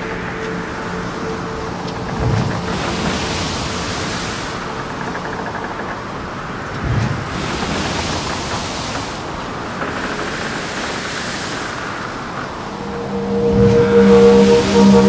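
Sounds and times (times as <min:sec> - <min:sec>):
sea rushing: 0:00.0 - 0:15.0
wind: 0:00.0 - 0:15.0
music: 0:12.7 - 0:15.0.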